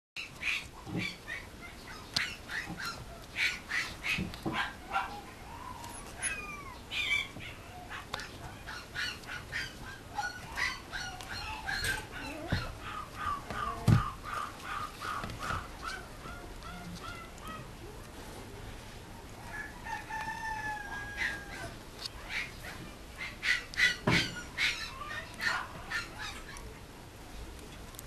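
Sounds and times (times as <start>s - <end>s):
squeaky toy squeaks: 5.9s - 7.3s.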